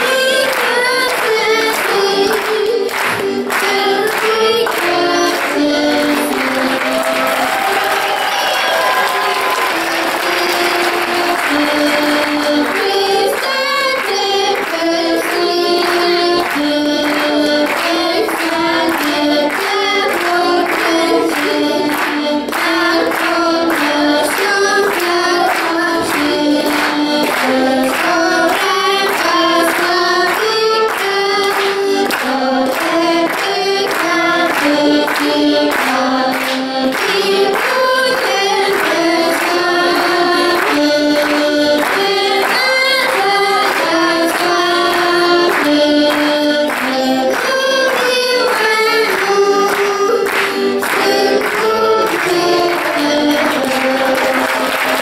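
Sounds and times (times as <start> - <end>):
button accordions playing: 0.0 - 8.1, 8.8 - 55.0
children singing: 0.0 - 55.0
girl singing lead: 0.0 - 55.0.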